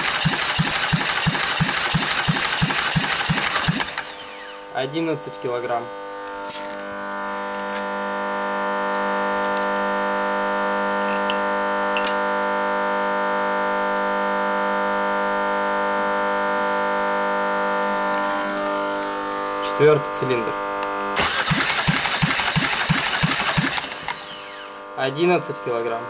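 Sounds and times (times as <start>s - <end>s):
machine drone: 0.0s - 4.8s, 13.6s - 25.0s.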